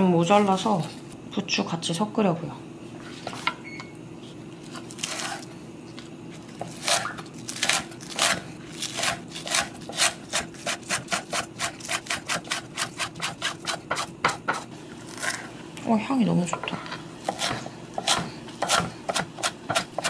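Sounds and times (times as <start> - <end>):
knife chopping on cutting board: 6.6 - 15.4, 16.6 - 20.0.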